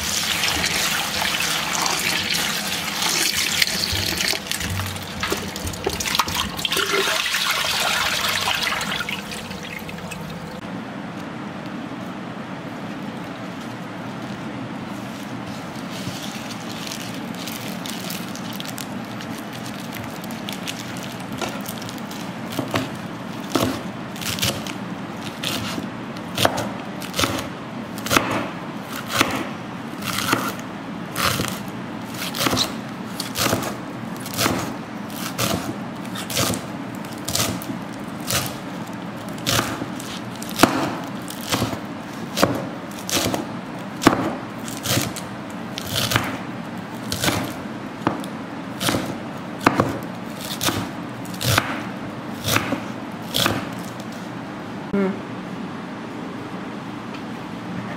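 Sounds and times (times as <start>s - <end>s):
knife chopping on wooden board: 22.6s - 24.7s, 26.4s - 30.6s, 32.3s - 34.7s, 39.4s - 45.2s, 45.8s - 46.4s, 47.1s - 53.7s.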